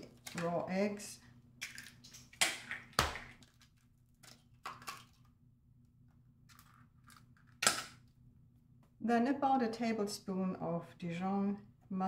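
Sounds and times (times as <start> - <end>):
eggs cracking: 0.0 - 5.5, 6.4 - 8.2.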